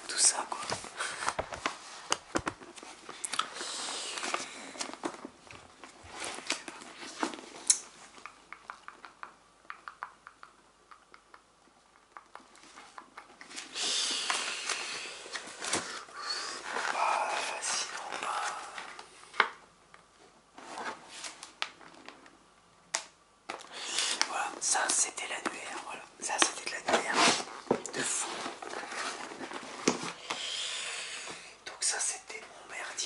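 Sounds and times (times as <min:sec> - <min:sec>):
book pages rustling: 0:00.3 - 0:08.2, 0:12.4 - 0:19.4, 0:23.6 - 0:30.3.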